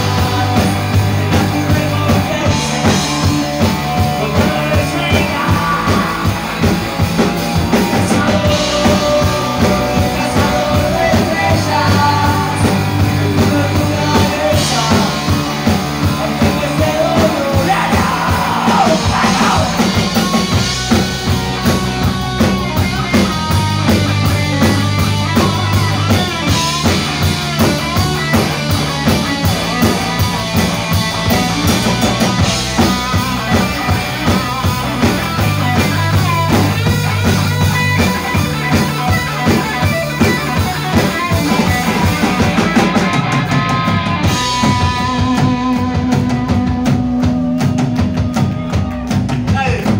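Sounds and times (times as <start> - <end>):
person singing: 0.0 - 6.9, 7.7 - 20.6, 43.7 - 49.9
live rock band playing: 0.0 - 49.9.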